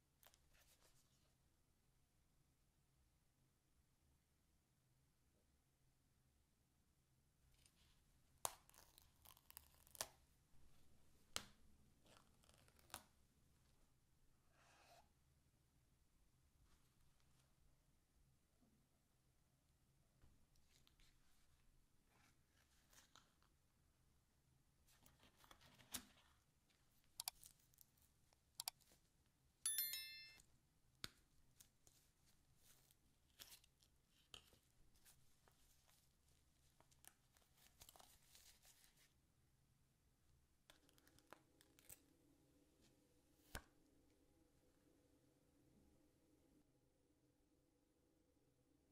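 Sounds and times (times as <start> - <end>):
bell-like ding: 29.7 - 30.4.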